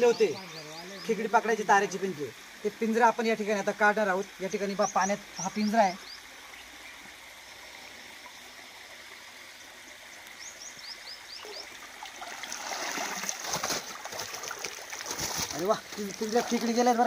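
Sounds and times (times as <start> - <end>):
shallow stream flowing: 0.0 - 17.0
water pouring off crab trap: 12.2 - 17.0.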